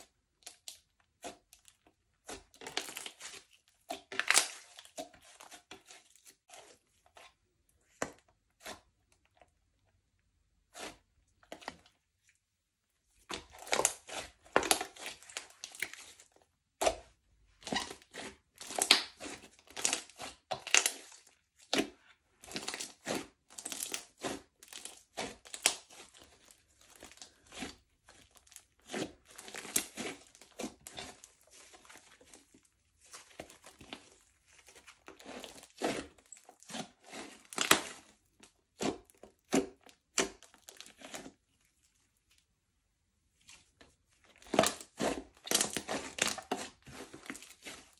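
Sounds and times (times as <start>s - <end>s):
slime crackling and popping: 4.0s - 5.0s, 18.6s - 21.1s.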